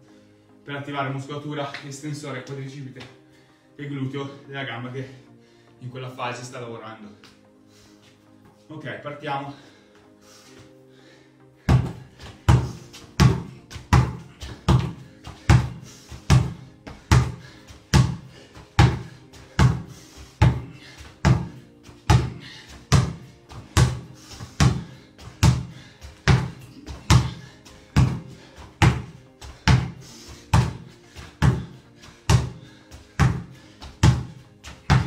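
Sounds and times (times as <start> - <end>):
background music: 0.0 - 35.0
basketball bouncing on tiles: 11.7 - 18.2, 18.8 - 23.2, 23.8 - 24.0, 24.6 - 25.7, 26.3 - 27.4, 28.0 - 29.1, 29.7 - 29.9, 31.4 - 31.7, 32.3 - 32.6, 33.2 - 33.4, 34.0 - 35.0.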